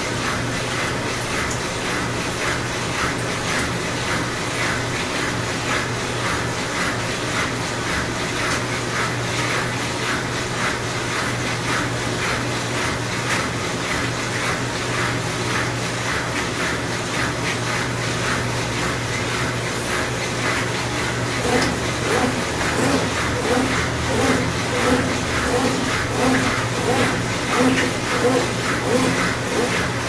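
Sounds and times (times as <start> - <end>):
washing machine motor hum: 0.0 - 30.0
washing machine load swishing: 16.0 - 30.0.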